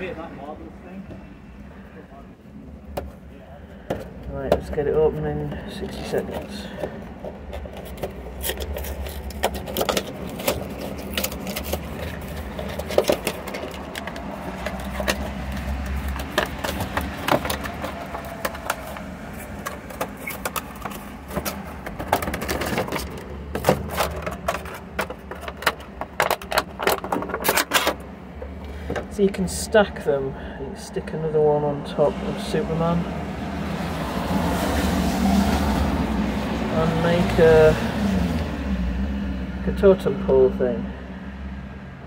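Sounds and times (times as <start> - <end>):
cardboard box being opened: 7.1 - 25.7
plastic packaging crinkling: 7.8 - 25.6.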